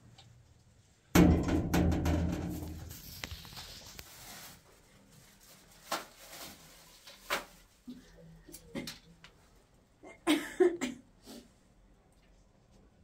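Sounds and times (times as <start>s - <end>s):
cloth rustling: 3.0s - 7.8s.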